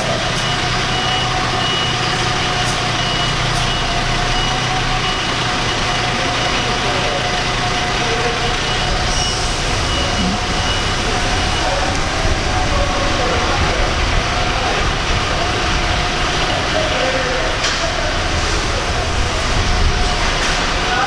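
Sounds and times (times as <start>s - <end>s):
reversing alarm beeps: 0.0s - 12.4s
bus diesel engine running: 0.0s - 21.0s.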